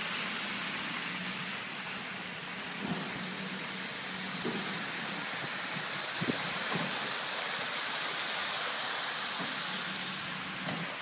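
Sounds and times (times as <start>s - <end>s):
heavy rain pouring: 0.0s - 11.0s
tyres splashing through floodwater: 0.0s - 11.0s.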